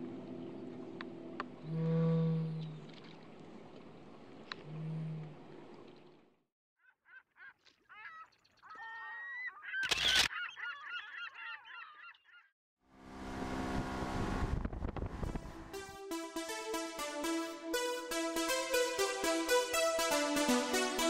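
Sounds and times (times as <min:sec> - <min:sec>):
birds squawking: 0:06.8 - 0:12.5
music: 0:15.3 - 0:21.0.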